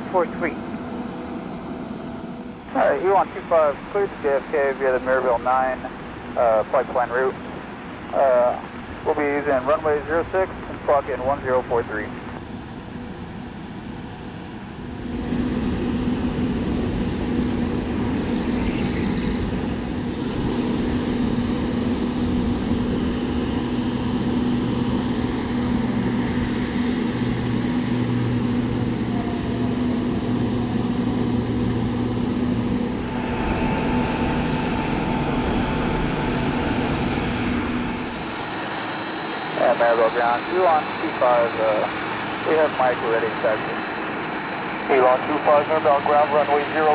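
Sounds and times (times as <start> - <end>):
jet engine hum: 0.0 - 46.9.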